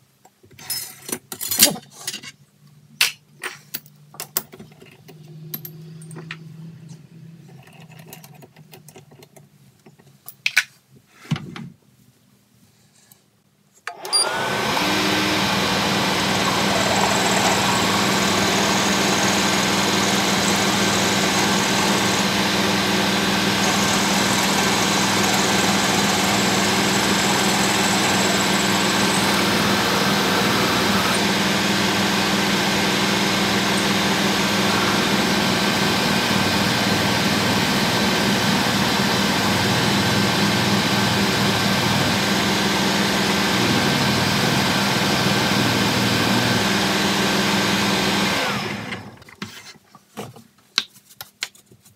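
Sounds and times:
drill feeding into work: 13.9 - 49.2
metal lathe running: 14.0 - 49.0.

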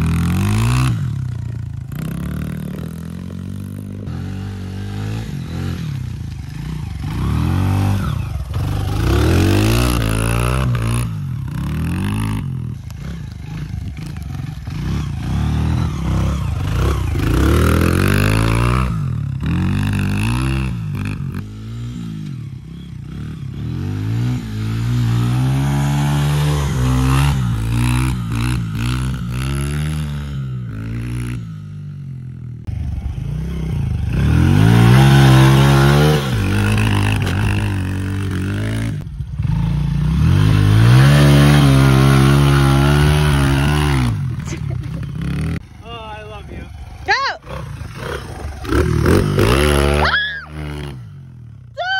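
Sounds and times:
dirt bike engine revving: 0.0 - 51.9.

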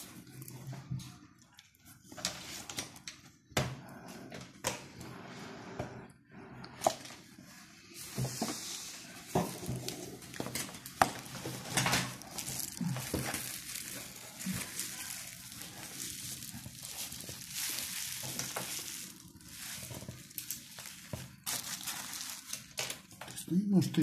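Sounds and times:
plastic wrapping rustling: 7.9 - 24.0.

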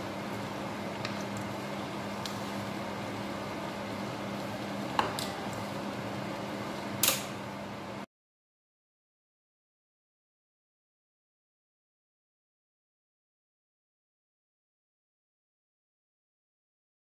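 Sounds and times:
fan hum and hiss: 0.0 - 8.1
small click: 7.0 - 7.3.

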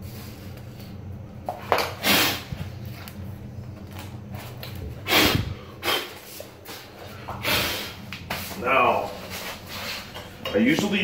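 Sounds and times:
steady low hum: 0.0 - 11.0
sharp exhalations of breath: 5.0 - 6.2.

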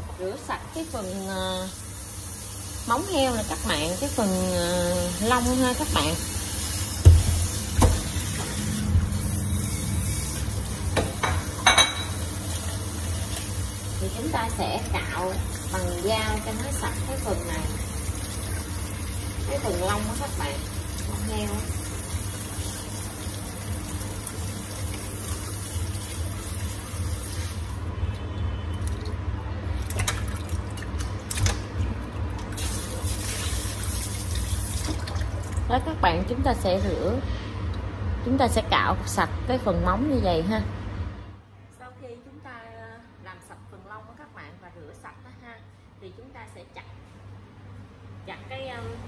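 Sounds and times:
tap water running into sink: 5.1 - 9.3, 29.8 - 35.7.

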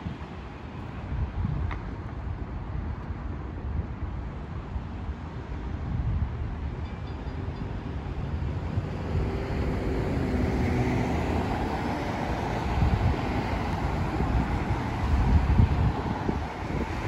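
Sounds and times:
road traffic rumble: 0.0 - 17.0
wind buffeting microphone: 0.0 - 17.0.

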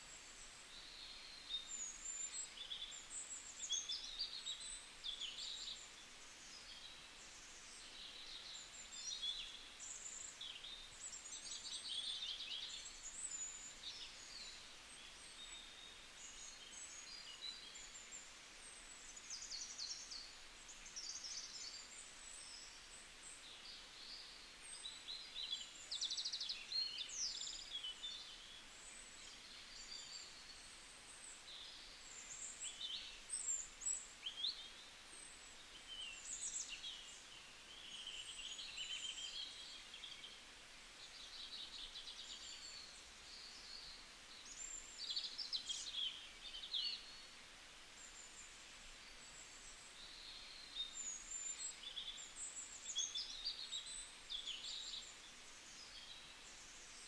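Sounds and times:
faint steady hiss: 0.0 - 57.0
songbirds chirping and trilling: 0.0 - 57.0.

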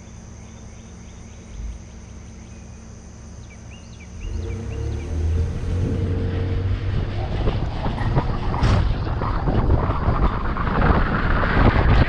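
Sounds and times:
low road rumble: 0.0 - 12.0
wind buffeting microphone: 4.2 - 12.0.

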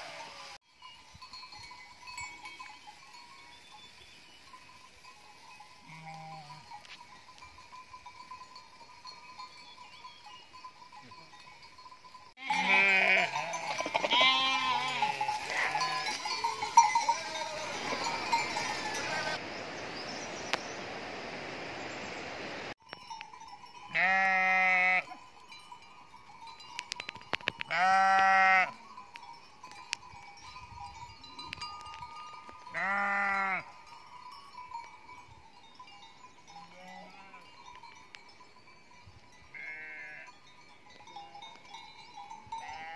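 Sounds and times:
sheep bleating: 12.4 - 19.4, 23.9 - 25.1, 27.7 - 28.8, 32.7 - 33.7, 39.6 - 40.3.

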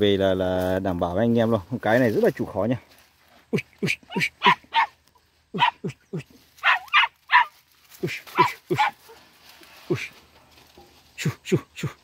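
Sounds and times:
dog barking: 4.4 - 4.9, 5.6 - 5.9, 6.6 - 7.5, 8.4 - 9.1.

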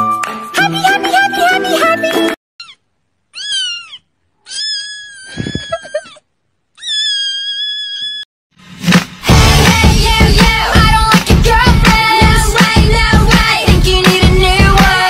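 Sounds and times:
music: 0.0 - 2.4, 8.7 - 15.0
kitten meowing: 2.6 - 6.2, 6.8 - 8.2.

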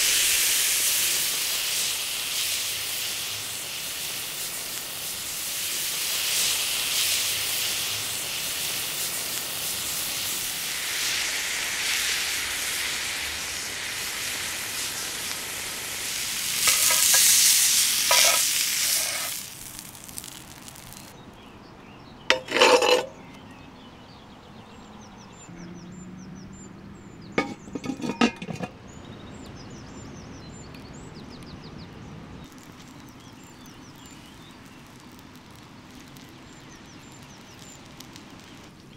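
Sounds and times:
steak sizzling on a grill: 0.0 - 21.2, 22.3 - 23.2, 27.4 - 28.7, 32.4 - 38.9
tongs clattering against grate: 16.6 - 17.3, 18.1 - 19.3, 22.3 - 23.2, 27.4 - 28.7
faint bird chirps: 23.1 - 38.9.

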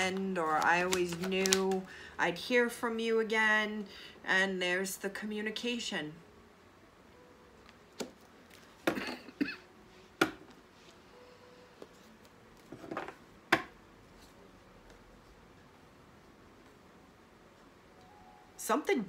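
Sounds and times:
cards clattering: 0.5 - 1.8.

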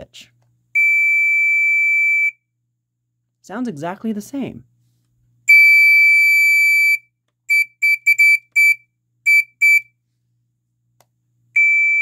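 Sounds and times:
smoke alarm shrill tone: 0.8 - 2.4, 5.5 - 9.9, 11.6 - 12.0
short beeps: 5.5 - 9.9, 11.6 - 12.0.

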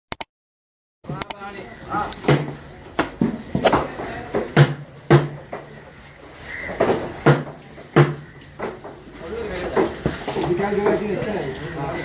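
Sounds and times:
high electronic beep: 2.2 - 4.0.

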